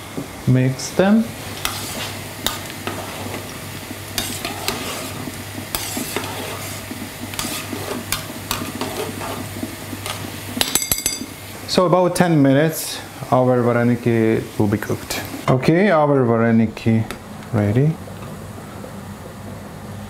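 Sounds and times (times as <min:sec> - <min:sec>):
cooking hiss: 0:00.0 - 0:16.2
spoon scraping and knocking pot: 0:04.2 - 0:11.4.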